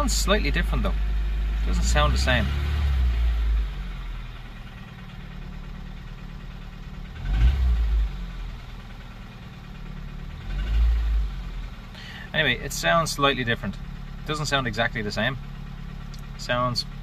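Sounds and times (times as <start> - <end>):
car engine idling: 0.0 - 17.0
low rumbles: 0.0 - 17.0.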